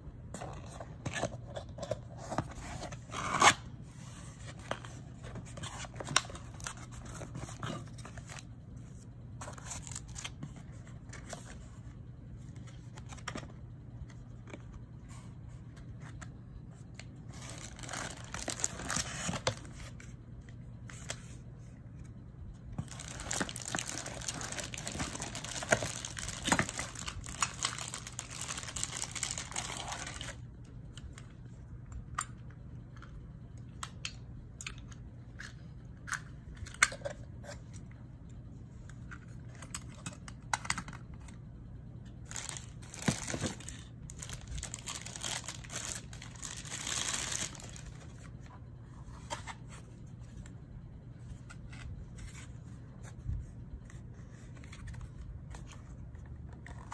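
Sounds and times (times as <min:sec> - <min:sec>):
low steady hum: 0:00.0 - 0:56.9
plastic bags crinkling: 0:17.5 - 0:19.3, 0:22.8 - 0:30.4, 0:42.3 - 0:48.1.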